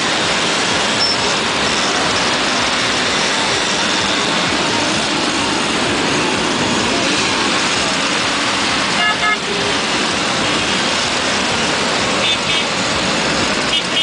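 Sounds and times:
mopeds engines running: 0:00.0 - 0:14.0
horn beeps: 0:01.0 - 0:01.2, 0:09.0 - 0:09.6, 0:13.7 - 0:14.0.

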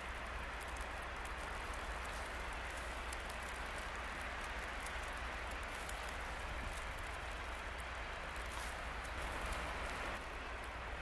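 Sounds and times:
precipitation ticks: 0:00.0 - 0:10.0
wind and sleet hiss: 0:00.0 - 0:11.0.

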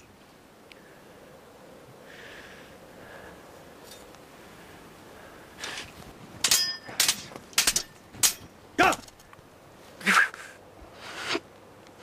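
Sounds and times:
swords clashing: 0:06.4 - 0:09.2.

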